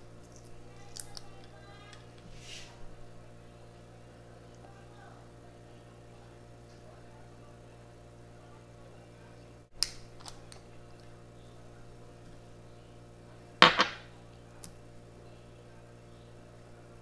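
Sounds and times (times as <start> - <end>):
steady low hum: 0.0 - 17.0
glass bottle set down on table: 13.6 - 14.0.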